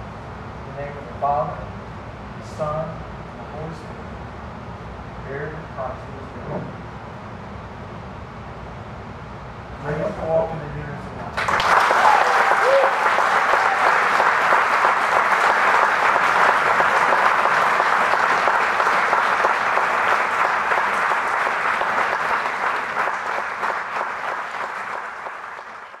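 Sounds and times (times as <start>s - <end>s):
congregation applauding: 11.4s - 26.0s.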